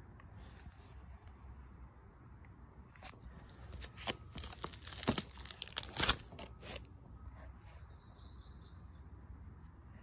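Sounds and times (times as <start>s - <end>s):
plastic sleeves crinkling: 3.7s - 6.8s.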